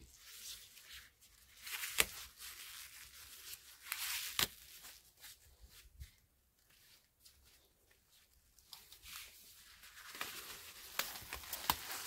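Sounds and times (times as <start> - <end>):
leaf stalks snapping: 3.9 - 4.6.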